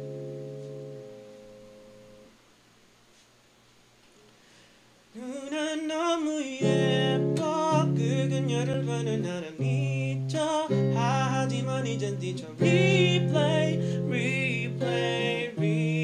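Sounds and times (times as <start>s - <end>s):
strummed electric guitar chords: 0.0s - 2.3s, 6.6s - 16.0s
man singing wordless melody: 5.1s - 16.0s.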